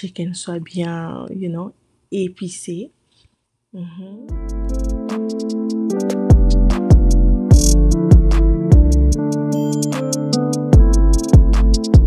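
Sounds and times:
electronic music: 0:04.3 - 0:12.0.

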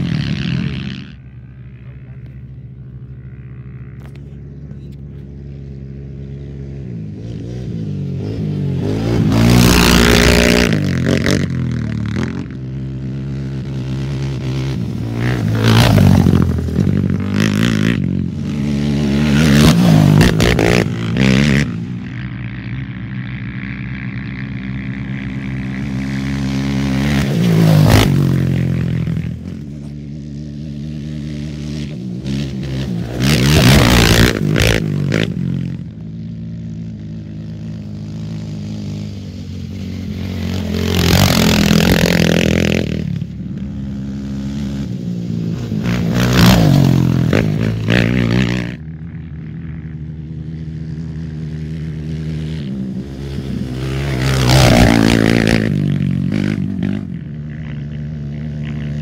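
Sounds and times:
motorcycles passing at speed: 0:00.0 - 0:59.0.

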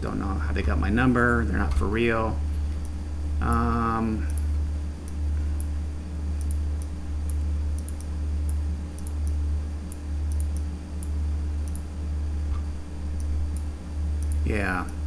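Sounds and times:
low electrical hum: 0:00.0 - 0:15.0
computer mouse clicks: 0:02.7 - 0:11.9, 0:12.5 - 0:15.0.

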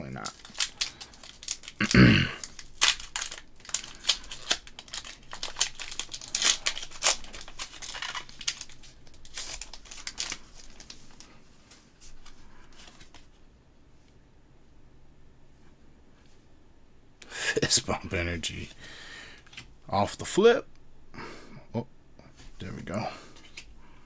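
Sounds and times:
foil wrapper crinkling and tearing: 0:00.0 - 0:11.3
cards rustling and clicking: 0:00.1 - 0:13.4, 0:23.3 - 0:23.7.

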